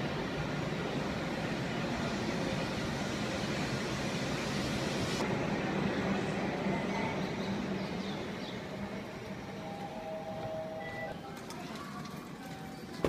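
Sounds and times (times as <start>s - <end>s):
train rumble: 0.0s - 13.0s
train hiss: 1.0s - 5.3s.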